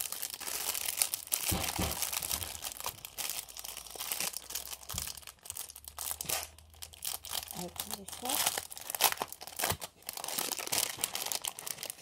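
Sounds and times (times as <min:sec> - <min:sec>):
cellophane crinkling: 0:00.0 - 0:12.0.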